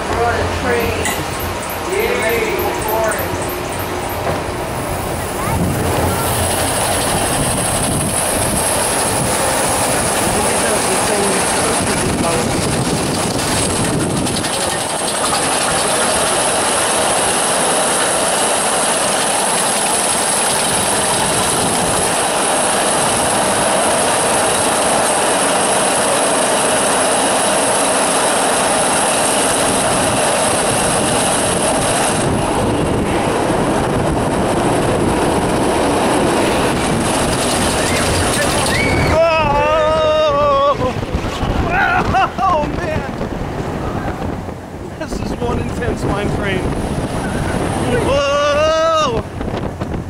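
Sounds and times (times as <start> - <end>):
roller coaster chain lift clattering: 0.0 - 43.8
steady high whine: 0.0 - 50.0.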